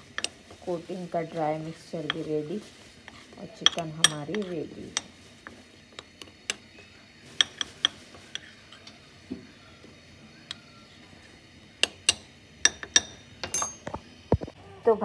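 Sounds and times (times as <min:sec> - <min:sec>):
spoon stirring dry flour: 0:00.0 - 0:09.8.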